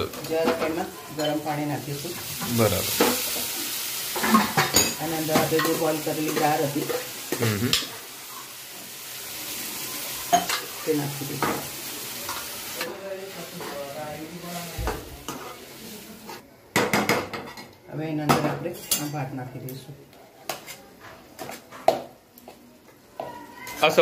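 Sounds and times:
sauce sizzling: 0.0 - 16.4
spoon scraping a pan: 10.2 - 12.9, 15.2 - 16.4.

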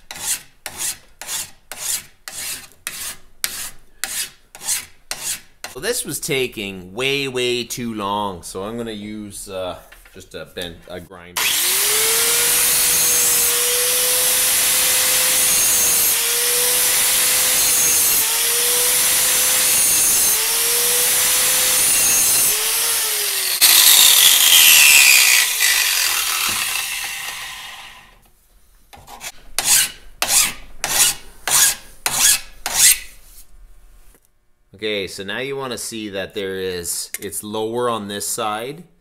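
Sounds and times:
hand file rasping on metal: 0.1 - 5.8, 11.5 - 28.0, 28.9 - 33.1
angle grinder grinding steel: 11.4 - 28.2.

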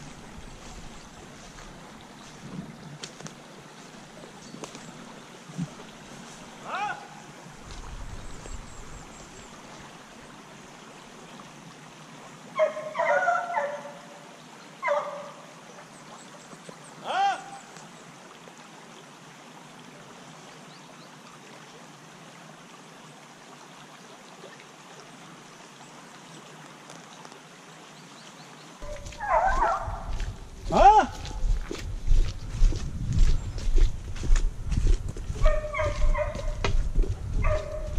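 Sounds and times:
small stream trickling: 0.0 - 37.9
distant hunting dogs baying: 12.6 - 14.2, 14.8 - 15.4, 28.8 - 30.3, 35.4 - 36.7, 37.4 - 37.9.

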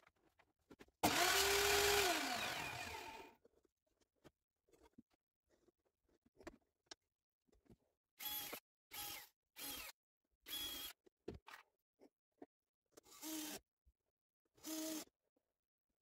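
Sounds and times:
cordless drill into wood: 1.0 - 3.3.

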